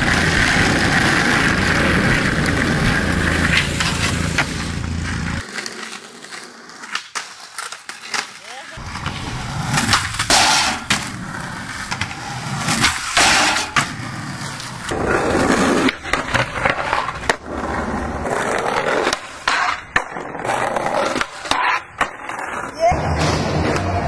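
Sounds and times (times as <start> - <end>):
skateboard clacks: 0.0 - 24.0
skateboard wheels rolling on concrete: 0.0 - 24.0.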